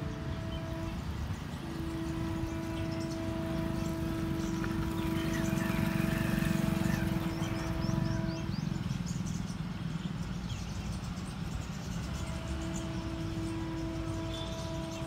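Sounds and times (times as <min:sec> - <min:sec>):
train horn long blast: 0:00.0 - 0:09.4, 0:11.5 - 0:15.0
birds chirping: 0:00.0 - 0:15.0
train rumble: 0:00.0 - 0:15.0.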